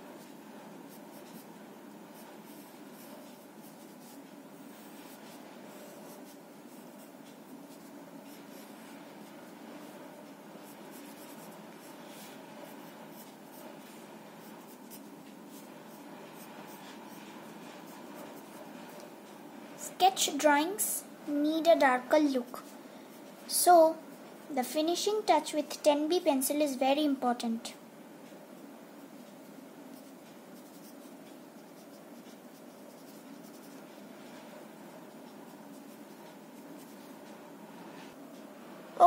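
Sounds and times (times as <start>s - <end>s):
steady background hiss: 0.0s - 39.0s
pencil scratching on paper: 0.2s - 19.0s, 29.9s - 38.1s.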